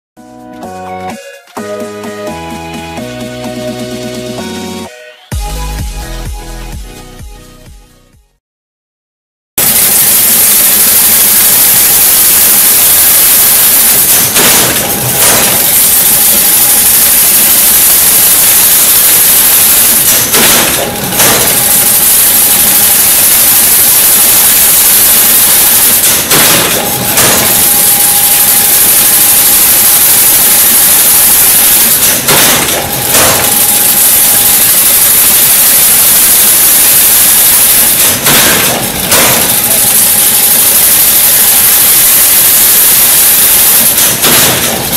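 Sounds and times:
fence weaving machine running: 0:09.6 - 0:44.9
machine clatter: 0:09.6 - 0:44.9.

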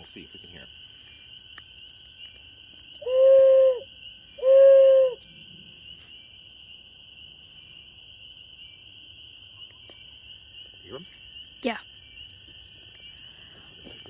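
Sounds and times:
chorus of spring peepers: 0:00.0 - 0:14.0
owl hoot flute call: 0:03.0 - 0:05.2.

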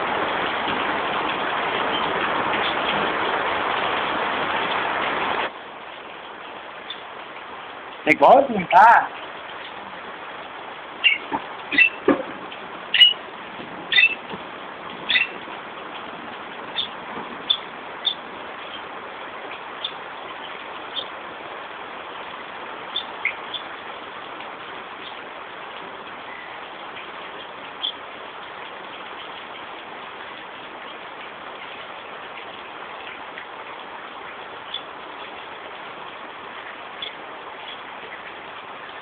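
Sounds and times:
high bird chirps: 0:11.0 - 0:12.0, 0:12.9 - 0:13.2, 0:13.9 - 0:14.2, 0:15.1 - 0:15.4.

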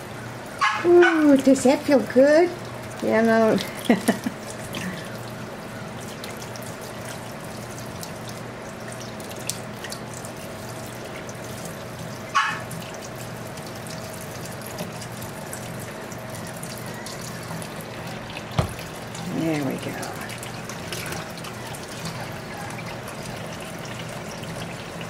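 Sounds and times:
faucet running into steel sink: 0:06.0 - 0:25.0
puppy high-pitched cry: 0:12.3 - 0:12.7.

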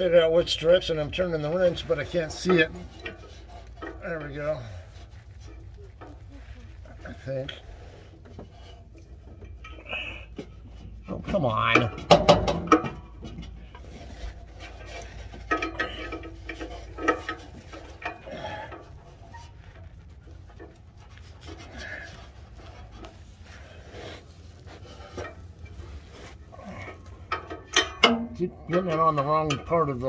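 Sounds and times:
wrench scraping against metal: 0:11.6 - 0:19.6.

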